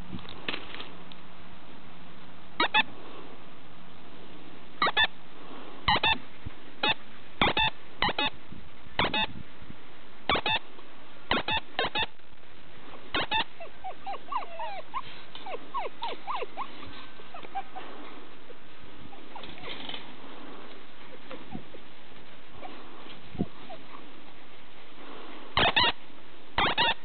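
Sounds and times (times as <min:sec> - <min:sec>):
puppies yipping: 0:04.8 - 0:05.1, 0:05.9 - 0:06.2, 0:06.8 - 0:08.4, 0:09.0 - 0:09.3, 0:10.3 - 0:10.6, 0:11.3 - 0:12.1, 0:13.1 - 0:18.2, 0:19.0 - 0:20.0, 0:21.1 - 0:24.2, 0:25.6 - 0:26.0, 0:26.6 - 0:27.0
puppies whining and whimpering: 0:13.2 - 0:20.0, 0:21.1 - 0:21.8, 0:22.5 - 0:24.1, 0:25.6 - 0:26.0, 0:26.6 - 0:27.0.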